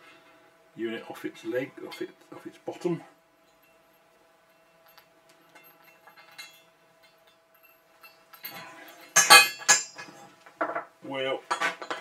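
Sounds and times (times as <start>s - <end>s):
metal clinking on metal: 3.4s - 10.9s
metal rattle: 3.4s - 10.9s.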